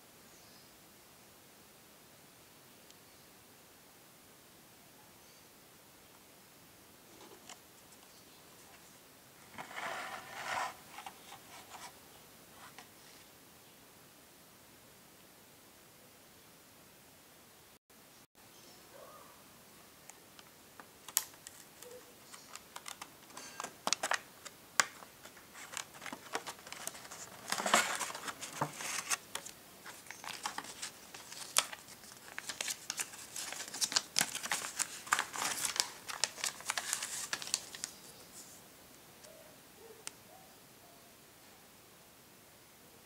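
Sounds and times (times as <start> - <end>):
plastic packaging crinkling and tearing: 21.0 - 38.0.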